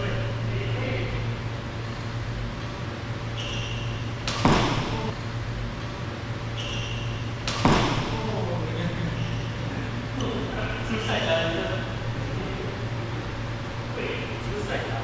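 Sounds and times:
steady low hum: 0.0 - 15.0
racket striking shuttlecock: 3.4 - 5.1, 6.6 - 8.2.

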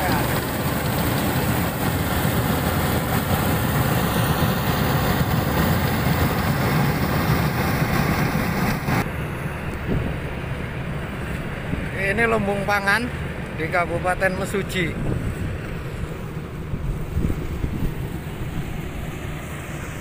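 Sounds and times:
harvester engine running under load: 0.0 - 12.0.

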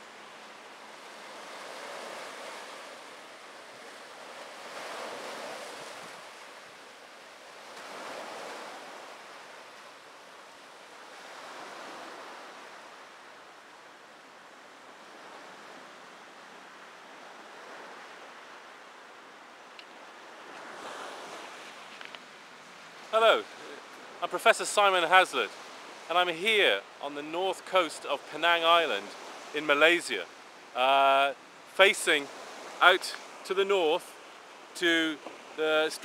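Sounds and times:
small waves washing ashore: 0.0 - 36.0
hiss of surf: 20.0 - 36.0.

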